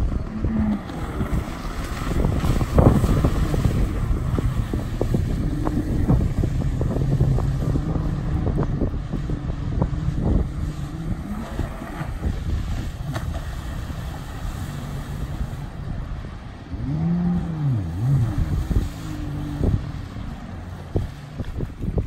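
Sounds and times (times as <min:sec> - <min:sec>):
jet ski engine revving: 0:00.0 - 0:22.0.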